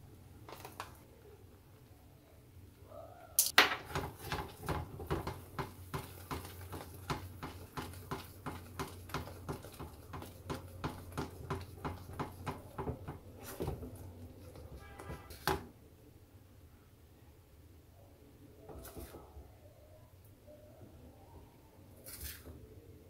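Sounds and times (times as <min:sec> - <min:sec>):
whisk stirring thick sauce in pan: 0:03.9 - 0:14.6.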